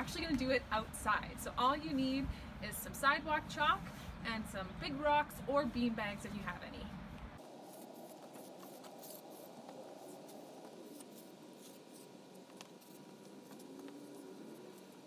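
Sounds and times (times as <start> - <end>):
chalk scraping on asphalt: 7.4 - 15.0.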